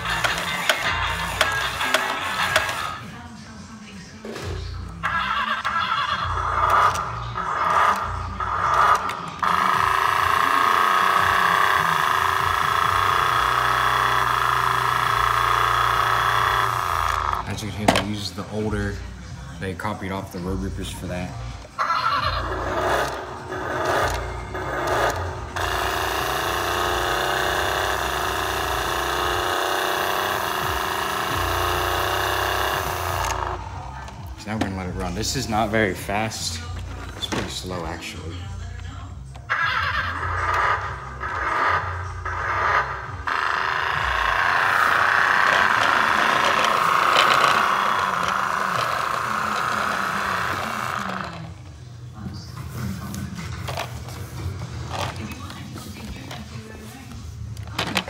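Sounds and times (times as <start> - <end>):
toy car motor whining: 0.0 - 3.2, 4.9 - 19.1, 20.4 - 34.3, 35.0 - 51.7.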